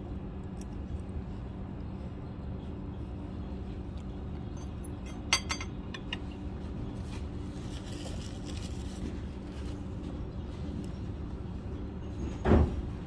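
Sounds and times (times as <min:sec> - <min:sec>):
restaurant background hum: 0:00.0 - 0:13.0
tableware clinking: 0:04.6 - 0:06.2.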